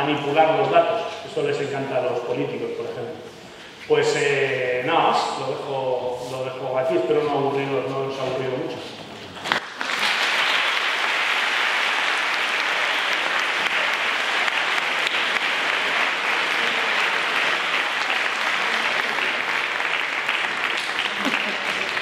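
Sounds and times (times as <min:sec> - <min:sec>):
crowd clapping: 0:09.4 - 0:22.0.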